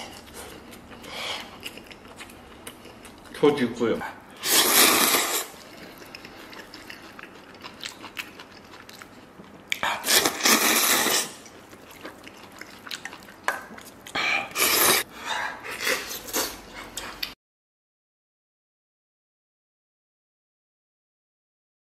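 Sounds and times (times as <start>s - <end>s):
soft chewing and mouth clicks: 0.0s - 3.4s, 5.6s - 10.1s, 11.1s - 14.8s, 15.6s - 17.4s
person slurping noodles: 4.4s - 5.8s, 9.8s - 11.4s, 14.4s - 17.2s.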